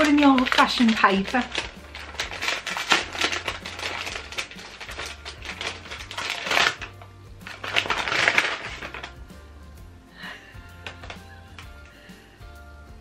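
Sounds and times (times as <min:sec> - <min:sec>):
paper crinkling and rustling: 0:00.0 - 0:09.2.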